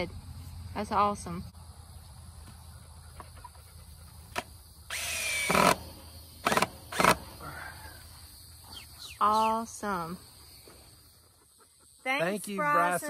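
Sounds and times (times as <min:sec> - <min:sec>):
cordless drill driving screws: 0:04.9 - 0:05.8, 0:06.4 - 0:07.2.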